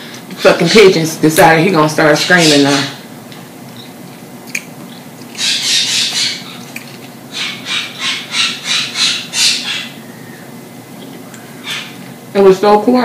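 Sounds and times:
birds screaming: 0:02.0 - 0:03.0, 0:04.9 - 0:12.1.

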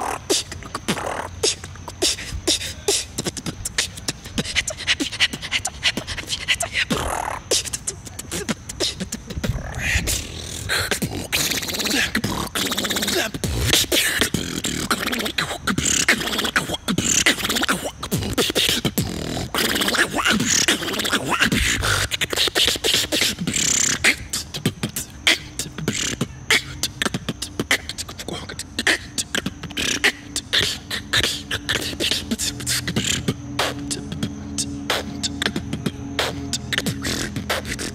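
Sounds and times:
beatboxing percussion: 0:00.0 - 0:37.9
low held bass notes: 0:30.3 - 0:37.9.

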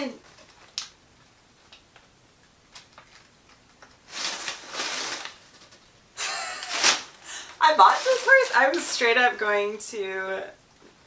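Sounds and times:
paper and bubble wrap rustling: 0:02.8 - 0:09.4.

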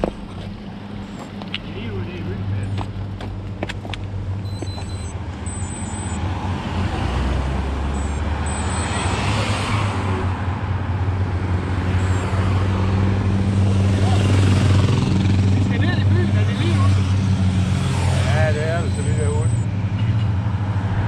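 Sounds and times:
vehicle engine approaching: 0:00.0 - 0:21.0.

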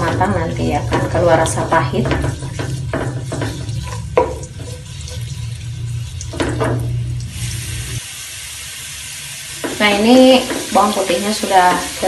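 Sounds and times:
wooden spatula scraping a pan: 0:00.0 - 0:05.6
garlic sizzling in oil: 0:00.0 - 0:12.0.

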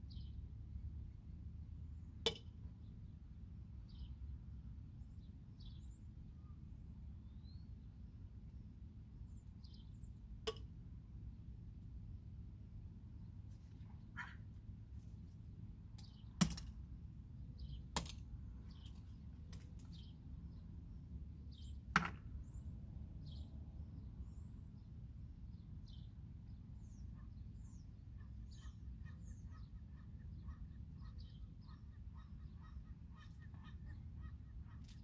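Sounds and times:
birds chirping: 0:00.0 - 0:00.4, 0:17.4 - 0:24.9, 0:25.5 - 0:35.0.

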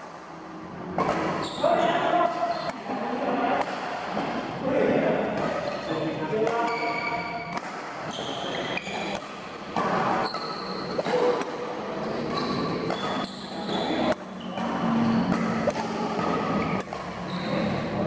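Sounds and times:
rackets hitting shuttlecock: 0:00.0 - 0:02.8, 0:03.6 - 0:04.4, 0:05.2 - 0:17.3
shoes squeaking on court floor: 0:01.0 - 0:02.8, 0:05.4 - 0:11.4, 0:12.0 - 0:18.0.

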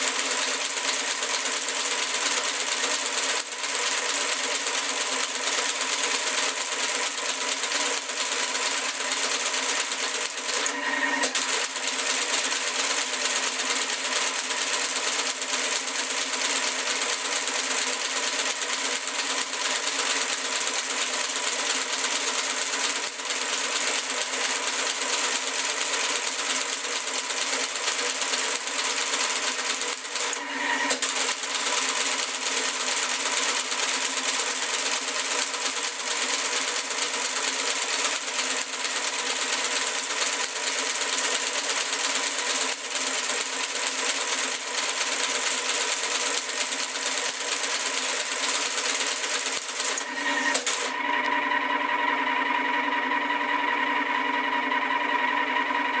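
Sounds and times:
typewriter mechanical clatter: 0:00.0 - 0:51.0
motor humming: 0:10.6 - 0:12.0, 0:30.3 - 0:31.2.

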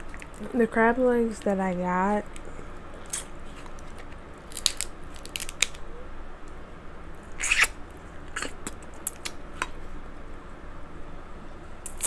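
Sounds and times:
crab shells cracking: 0:03.0 - 0:05.8.

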